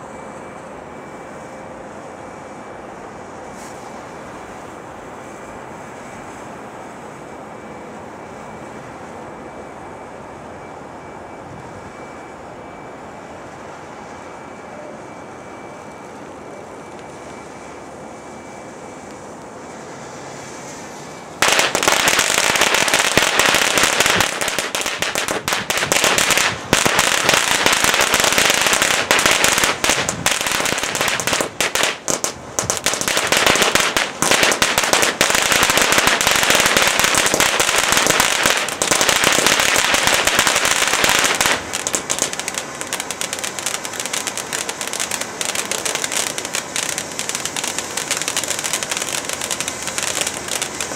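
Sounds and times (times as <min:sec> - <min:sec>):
firework crackling: 0:01.2 - 0:09.2, 0:15.6 - 0:50.9
firework sparks hissing: 0:03.4 - 0:07.2, 0:19.0 - 0:50.9.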